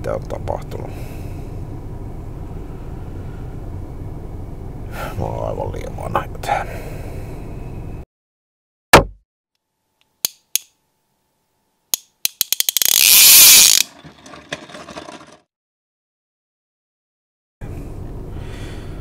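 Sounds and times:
clicks speeding into ratchet whirr: 0:12.2 - 0:15.1.

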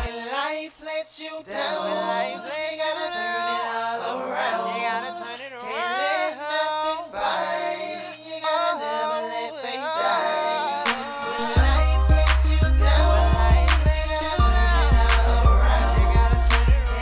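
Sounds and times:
person singing long notes: 0:11.0 - 0:17.0.

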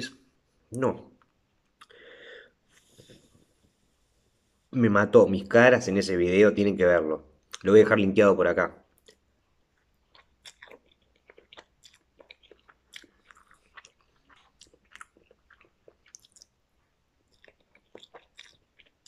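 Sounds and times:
chewing noodles: 0:09.0 - 0:16.6, 0:17.2 - 0:19.0.

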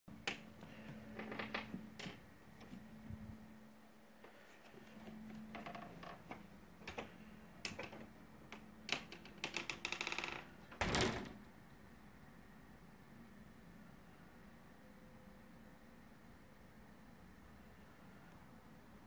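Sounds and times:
faint steady hum: 0:00.1 - 0:19.0
sharp clicks and creaks: 0:00.2 - 0:02.2, 0:04.9 - 0:10.7.

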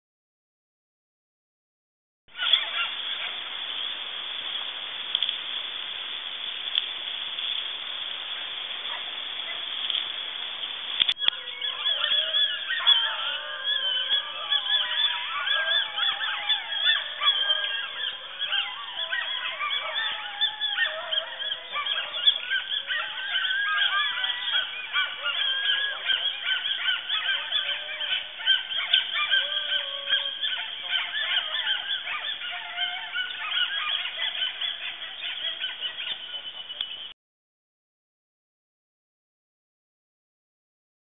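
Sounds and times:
pack of wild dogs howling: 0:02.4 - 0:03.5, 0:07.9 - 0:10.4, 0:11.0 - 0:36.8.

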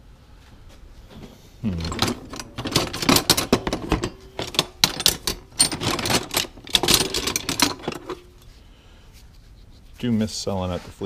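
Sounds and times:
metal tools clattering in plastic tote: 0:01.8 - 0:08.3.

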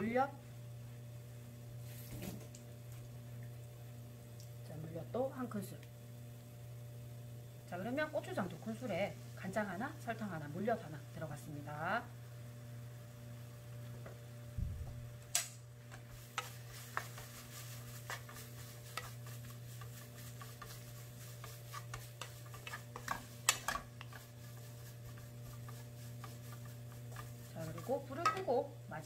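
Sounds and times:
steady low hum: 0:00.0 - 0:29.0
spatula scraping in a pan: 0:15.8 - 0:28.6.

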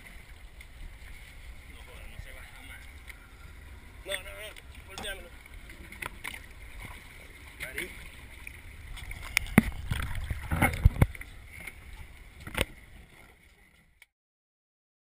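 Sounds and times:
low rumble: 0:08.2 - 0:12.6.

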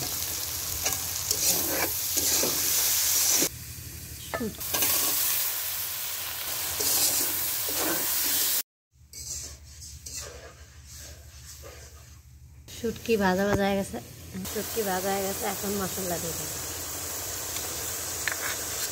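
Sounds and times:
food sizzling in hot oil: 0:00.0 - 0:12.1, 0:12.7 - 0:18.9
spatula scraping pan: 0:00.8 - 0:03.5, 0:06.8 - 0:12.4.

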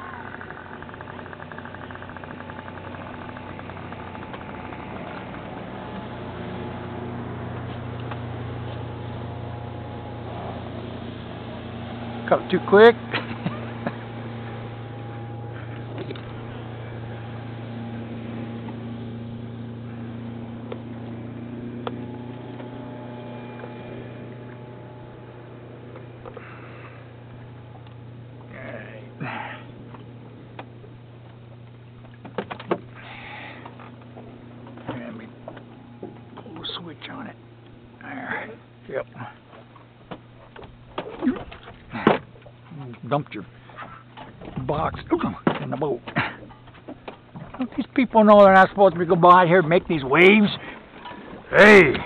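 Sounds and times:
boat motor humming: 0:00.0 - 0:52.0.

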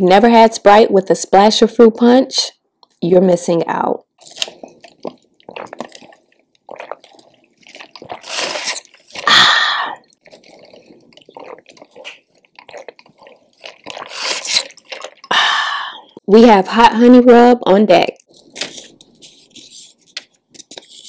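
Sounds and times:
swallowing with wet mouth sounds: 0:04.2 - 0:16.3
sipping through a straw: 0:04.3 - 0:16.2
breathy exhales: 0:09.2 - 0:10.1, 0:15.3 - 0:16.2.

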